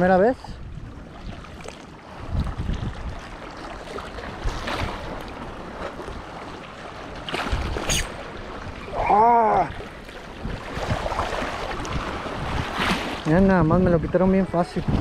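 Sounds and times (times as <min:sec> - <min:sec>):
wind on microphone: 0:00.0 - 0:06.3, 0:07.2 - 0:15.0
sea waves washing: 0:00.0 - 0:15.0.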